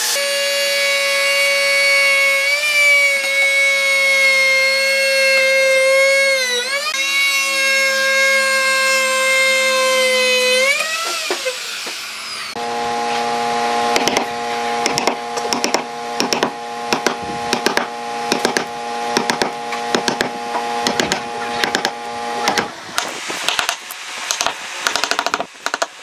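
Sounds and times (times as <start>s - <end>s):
wood router motor whine: 0.0s - 23.6s
steady hum: 11.6s - 26.0s
mallet striking chisel: 14.0s - 25.9s.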